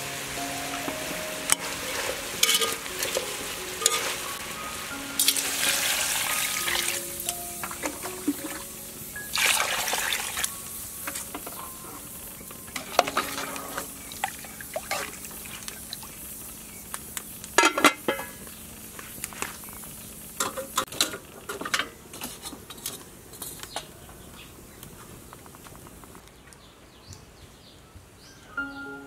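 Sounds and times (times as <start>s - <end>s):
metal lid clattering on pot: 1.9s - 4.2s
water pouring into pot: 5.2s - 7.0s, 9.3s - 10.5s, 12.8s - 16.1s.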